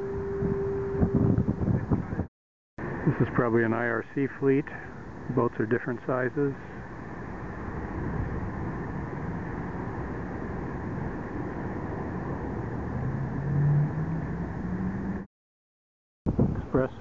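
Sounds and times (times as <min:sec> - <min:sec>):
low hum rising in pitch: 0:00.0 - 0:02.3, 0:07.9 - 0:15.3
wind noise on microphone: 0:00.0 - 0:03.4, 0:06.8 - 0:15.2, 0:16.3 - 0:17.0.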